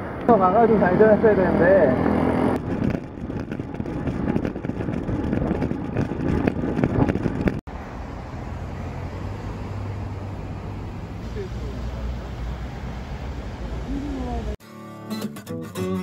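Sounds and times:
low hum of car traffic: 0.0 - 5.2, 5.8 - 14.6
road and traffic noise: 0.0 - 14.6
wind buffeting microphone: 1.5 - 7.7.

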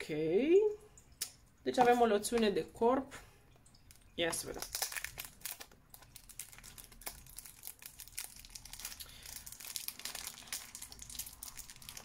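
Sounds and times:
plastic film crinkling and tearing: 4.3 - 12.0.

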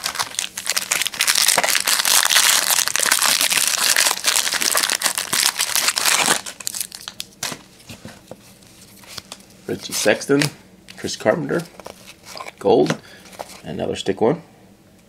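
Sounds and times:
foil wrapper crinkling: 0.0 - 7.6, 11.5 - 13.7.

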